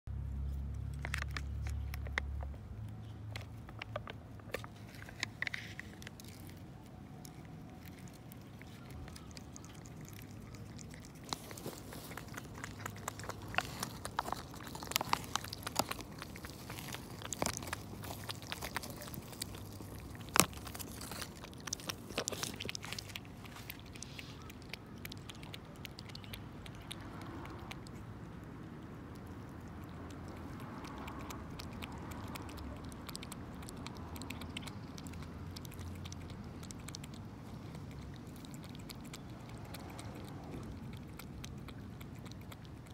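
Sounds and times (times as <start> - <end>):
cat licking: 3.5 - 42.9
plastic packaging crinkling: 4.4 - 24.5.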